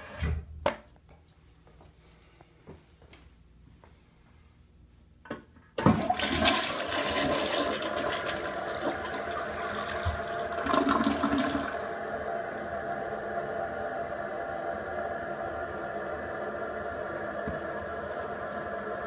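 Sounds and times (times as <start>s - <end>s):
toilet tank refilling: 5.8s - 15.4s
toilet flushing: 5.8s - 19.0s.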